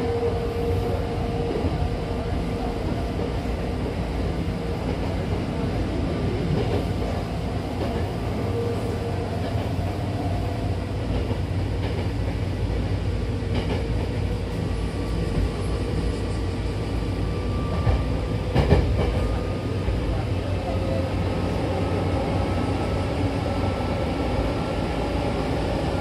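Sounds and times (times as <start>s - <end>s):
train wheels rumbling on rail: 0.0s - 26.0s.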